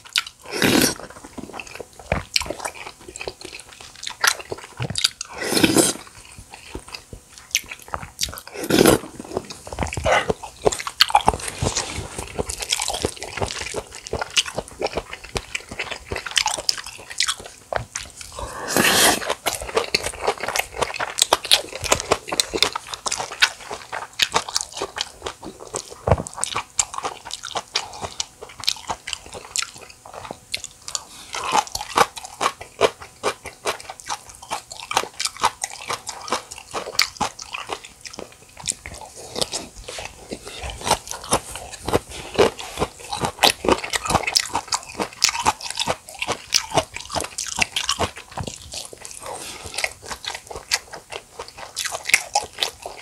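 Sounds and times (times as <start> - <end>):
chewing and crunching food: 0.0 - 53.0.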